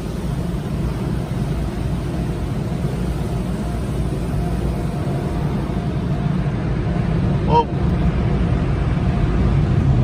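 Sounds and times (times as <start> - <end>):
water spraying over car: 0.0 - 7.4.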